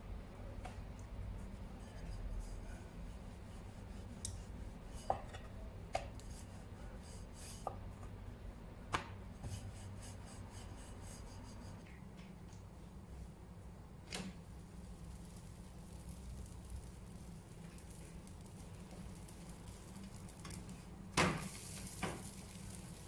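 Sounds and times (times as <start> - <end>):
rolling pin rubbing on dough: 1.3 - 5.3, 6.1 - 7.8, 9.4 - 11.8.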